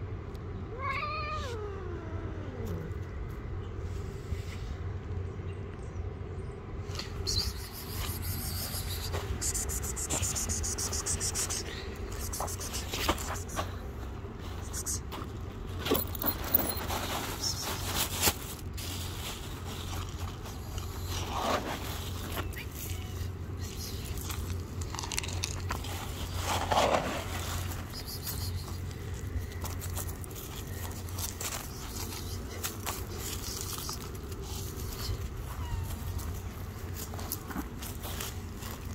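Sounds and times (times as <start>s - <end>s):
steady low rumble: 0.0s - 38.9s
footsteps crunching on dry grass: 17.1s - 38.9s
dry kibble clicking in a bowl: 23.8s - 25.9s.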